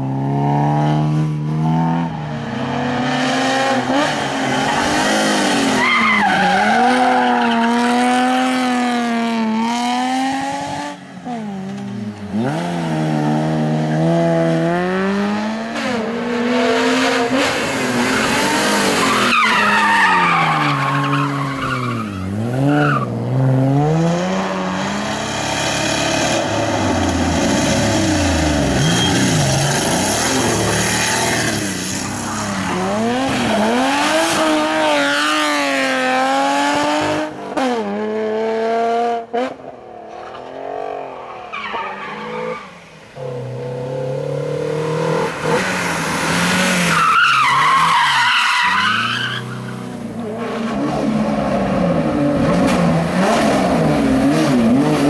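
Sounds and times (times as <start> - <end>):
rally car engines revving: 0.0 - 55.0
tyres squealing and skidding: 3.8 - 8.7, 16.5 - 23.2, 26.6 - 35.8, 40.8 - 43.5, 45.2 - 53.6.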